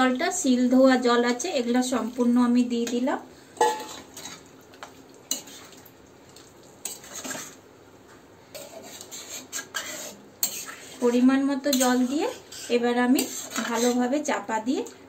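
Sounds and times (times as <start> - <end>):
metal spatula scraping a pan: 3.6 - 4.4, 5.3 - 5.8, 6.8 - 7.6, 8.5 - 14.2.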